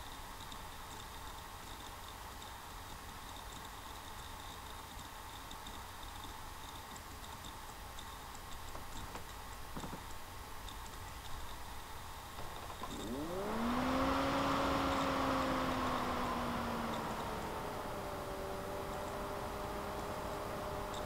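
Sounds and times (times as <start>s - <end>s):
low hiss: 0.0s - 21.0s
motor humming: 12.4s - 21.0s.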